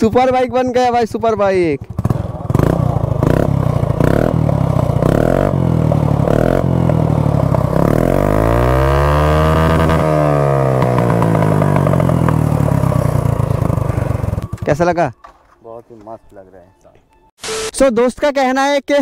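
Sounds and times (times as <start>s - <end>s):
scooter engine revving: 1.5s - 14.8s.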